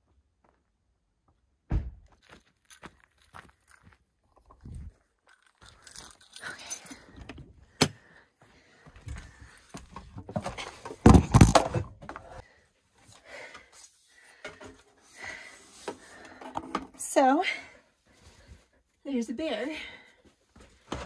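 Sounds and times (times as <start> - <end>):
loud thump: 1.7 - 2.1.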